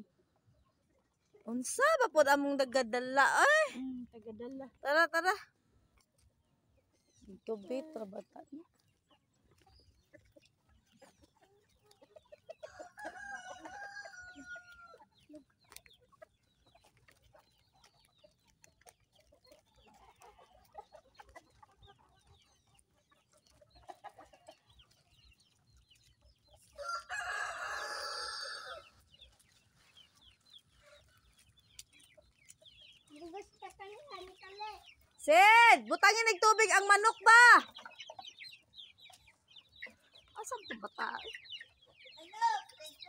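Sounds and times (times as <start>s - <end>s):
hens clucking faintly: 4.9s - 43.0s
rooster crowing: 26.8s - 28.9s.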